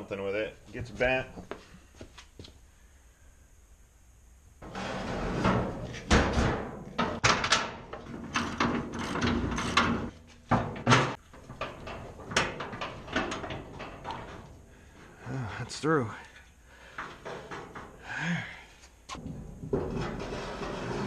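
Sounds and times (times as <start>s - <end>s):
metal clanking and knocking: 4.6s - 14.7s, 16.9s - 18.0s, 19.2s - 21.0s.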